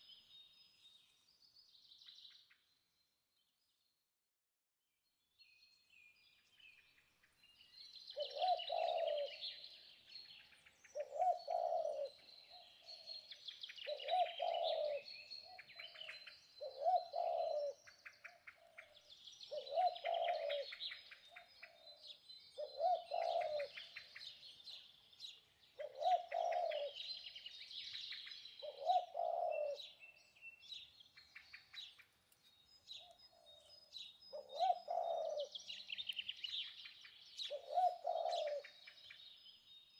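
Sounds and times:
birds chirping and twittering: 5.4 - 39.9
low cooing bird call: 8.0 - 32.0, 32.9 - 39.4.

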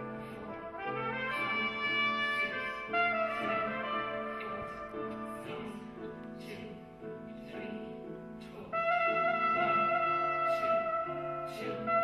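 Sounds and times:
music with held brass notes: 0.0 - 6.0, 8.7 - 12.0.

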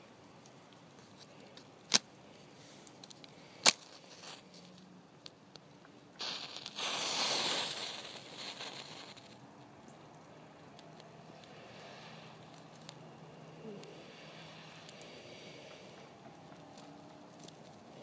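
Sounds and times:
match scraping on striker strip: 6.2 - 9.4
matches flaring with hissing rush: 6.2 - 9.5, 10.4 - 18.0.

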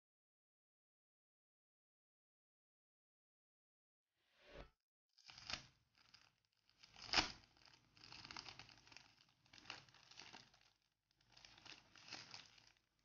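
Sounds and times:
plastic sleeve crinkling: 5.3 - 13.0.

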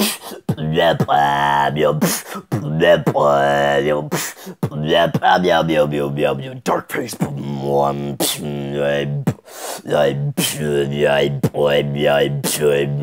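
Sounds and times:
beatboxed hissing snare hits: 0.0 - 0.5
beatboxing bass notes: 0.0 - 13.0.

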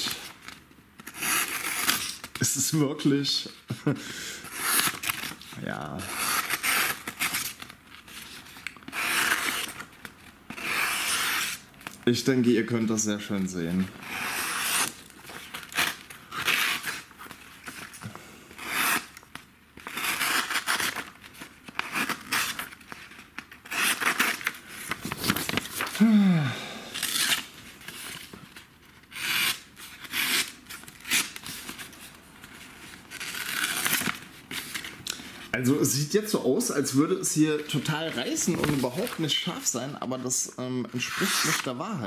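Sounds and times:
paper tearing: 0.0 - 2.9, 4.4 - 9.9, 10.5 - 12.8, 13.7 - 17.9, 18.6 - 26.0, 27.0 - 28.3, 29.1 - 32.0, 32.9 - 35.0, 36.8 - 39.9, 41.0 - 41.9.

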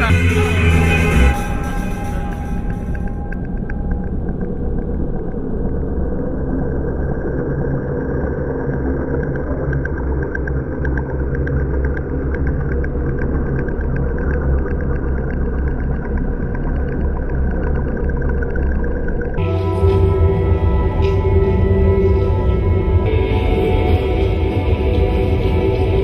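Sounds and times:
thin high tone: 0.0 - 3.7, 19.4 - 26.0
deep rumbling drone: 0.0 - 26.0.

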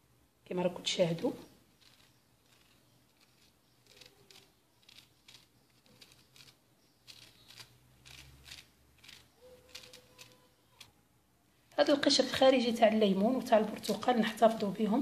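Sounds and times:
knife scraping lemon peel: 1.8 - 11.0.

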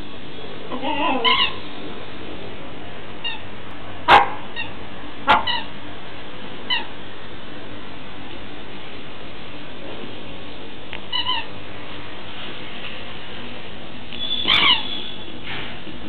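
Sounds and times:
squeaky dog toy squeaking: 0.9 - 1.6, 5.3 - 5.7, 11.1 - 11.5, 14.2 - 15.2.

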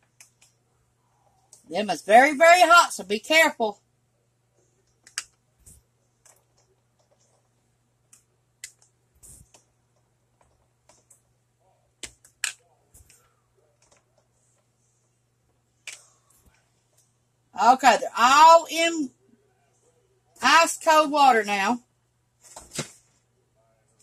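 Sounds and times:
faint low hum: 0.0 - 24.0
eggs clicking and knocking: 4.8 - 11.4, 12.0 - 14.8.

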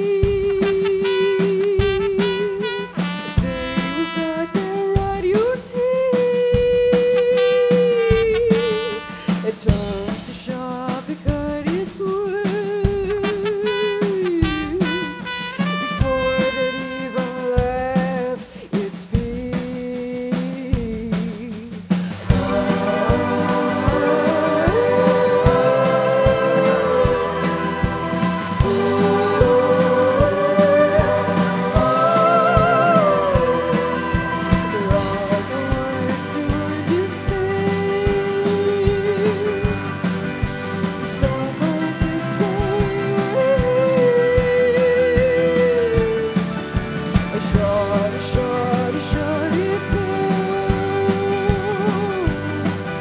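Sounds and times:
live rock band playing: 0.0 - 18.6, 22.0 - 53.0
person singing: 0.0 - 39.9, 40.8 - 46.5, 47.3 - 53.0
trumpet long held notes: 0.8 - 4.8, 7.2 - 9.4, 13.5 - 17.4, 22.3 - 35.6
guitar bass and drums: 22.1 - 53.0.

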